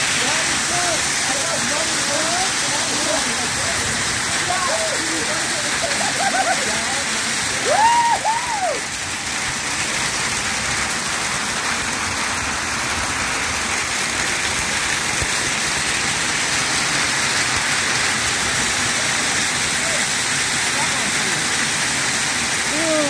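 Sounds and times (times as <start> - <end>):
hail falling hiss: 0.0 - 23.0
voice calling out: 22.7 - 23.0.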